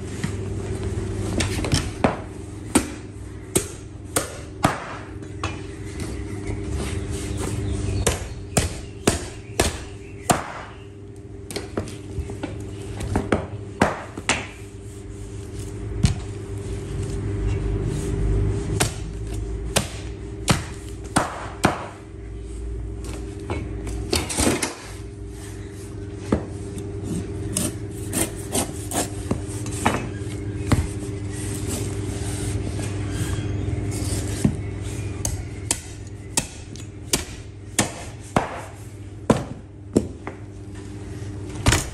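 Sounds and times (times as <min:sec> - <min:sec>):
knife chopping on bone and board: 0:01.8 - 0:05.1, 0:08.0 - 0:10.8, 0:18.8 - 0:22.0, 0:35.2 - 0:40.2
knife scraping: 0:27.0 - 0:29.8, 0:31.2 - 0:34.4.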